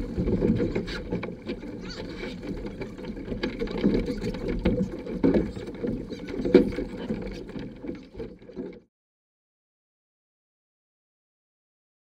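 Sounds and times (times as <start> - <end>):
knocks and splashes: 0.0 - 8.8
water slapping against hull: 0.0 - 8.8.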